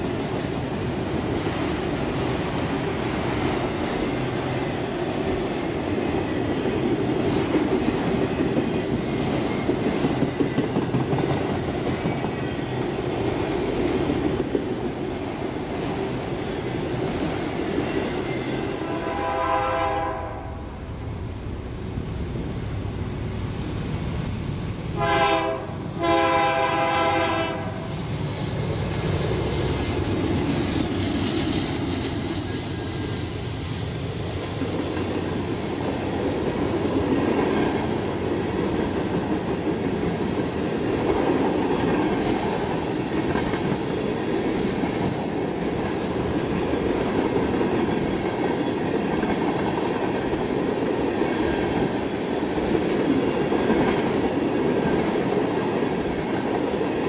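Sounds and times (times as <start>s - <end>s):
train wheels clattering on rails: 0.0s - 19.3s, 28.1s - 57.0s
locomotive air horn blasts: 18.8s - 20.6s, 25.0s - 27.8s.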